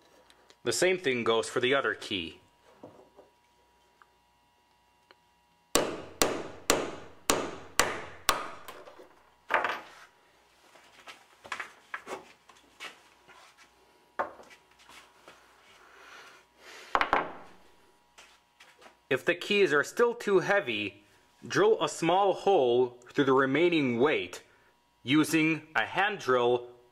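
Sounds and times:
hammer striking metal: 5.8s - 8.8s.

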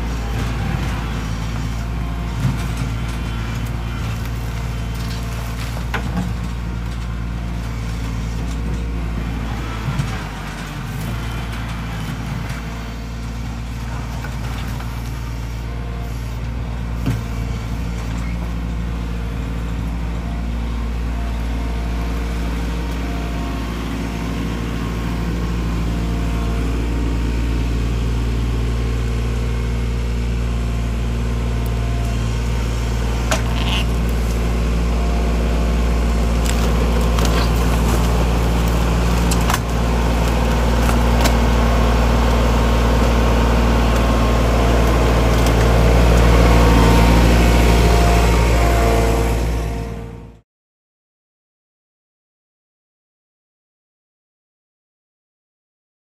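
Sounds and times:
tractor diesel engine running: 0.0s - 50.4s.

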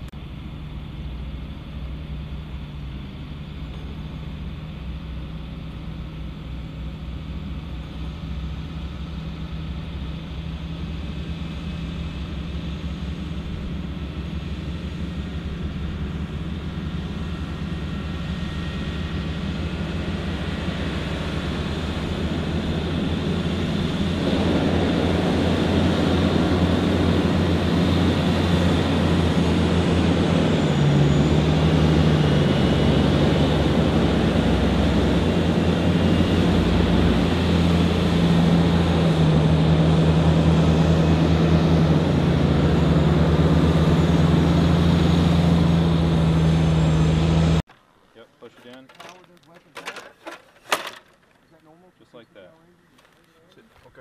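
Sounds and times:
diesel engines drone: 0.0s - 48.6s, 50.6s - 54.0s
tyres on gravel: 47.7s - 54.0s.

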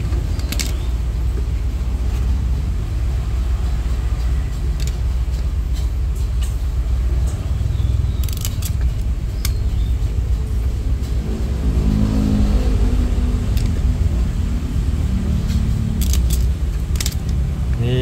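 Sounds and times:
vehicle engine rumbling: 0.0s - 18.0s
sharp clicks: 8.1s - 10.0s, 13.5s - 13.9s, 15.5s - 17.8s.

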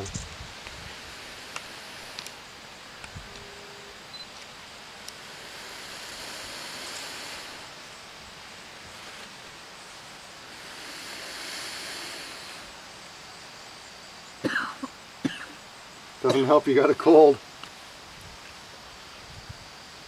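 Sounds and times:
person blowing on tinder: 0.0s - 2.5s, 5.0s - 8.0s, 10.4s - 12.9s.

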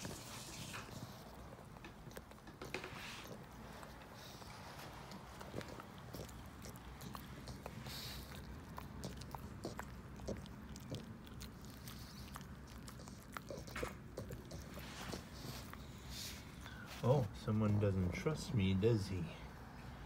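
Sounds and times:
dog teeth clicking on chew: 0.7s - 15.8s.

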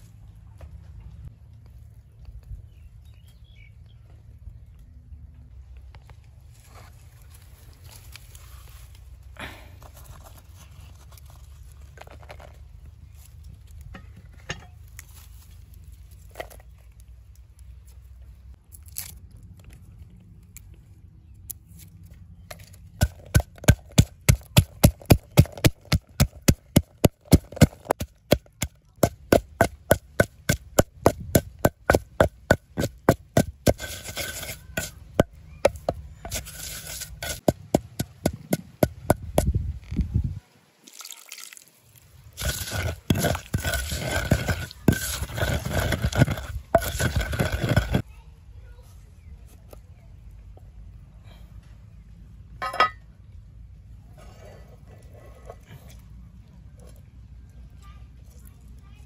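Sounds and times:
pestle pounding in mortar: 23.0s - 39.6s, 42.4s - 48.0s.

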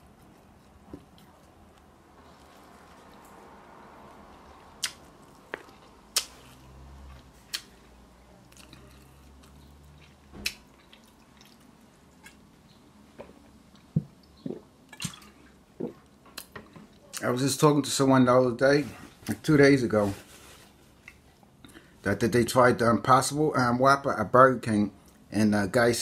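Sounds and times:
person chewing: 0.0s - 12.5s, 13.1s - 16.6s
wet mouth smacks and clicks: 4.8s - 5.0s, 5.6s - 6.4s, 7.5s - 7.8s
person gulping water: 14.3s - 16.1s.

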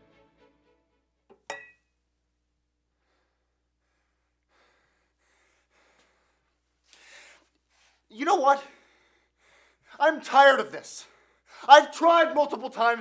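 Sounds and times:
faint breaths: 2.9s - 10.0s.

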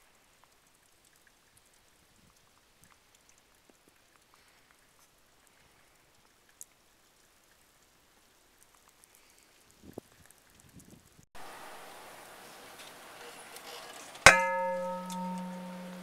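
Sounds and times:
small ticks: 0.0s - 11.2s
faint hiss: 0.0s - 16.0s.

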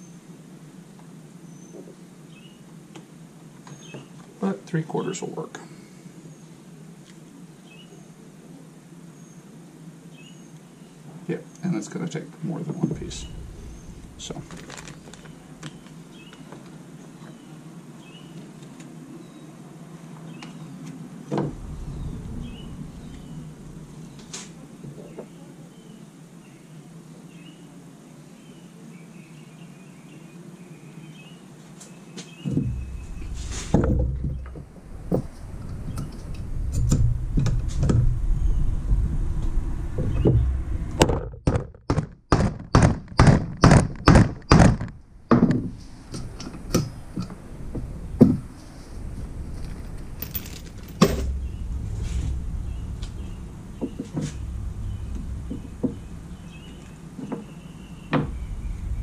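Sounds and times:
low thuds of parts handled: 21.3s - 24.6s, 32.4s - 38.3s, 39.9s - 59.0s.

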